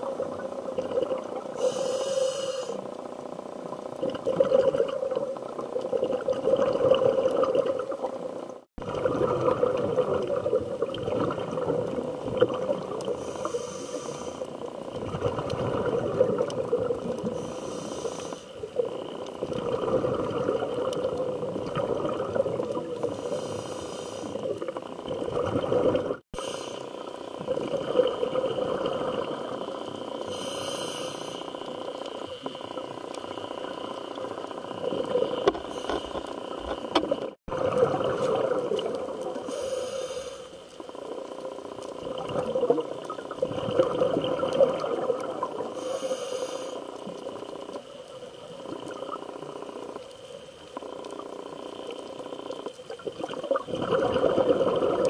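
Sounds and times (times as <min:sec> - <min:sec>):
exhaled bubbles rushing: 0:00.0 - 0:01.6, 0:03.8 - 0:13.2, 0:14.8 - 0:17.4, 0:18.6 - 0:23.2, 0:24.4 - 0:26.2, 0:27.3 - 0:30.1, 0:36.4 - 0:39.5, 0:41.0 - 0:45.8, 0:51.2 - 0:55.0
muffled underwater regulator breaths: 0:01.5 - 0:02.9, 0:13.0 - 0:14.6, 0:17.2 - 0:18.8, 0:22.8 - 0:24.7, 0:26.4 - 0:27.1, 0:30.2 - 0:32.8, 0:35.1 - 0:37.0, 0:39.4 - 0:40.8, 0:45.6 - 0:47.2.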